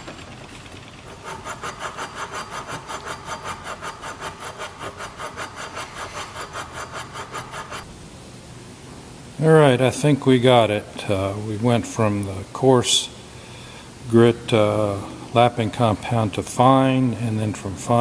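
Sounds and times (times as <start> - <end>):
gritty metal rubbing back and forth: 0.0 - 7.9.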